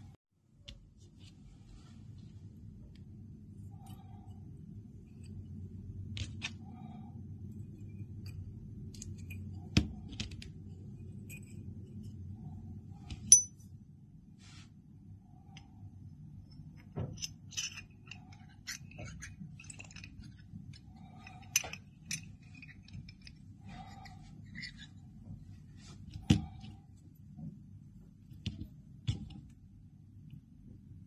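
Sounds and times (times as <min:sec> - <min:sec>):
metal clink with high ring: 0:13.3 - 0:13.7
small metal parts clicking: 0:16.5 - 0:25.0.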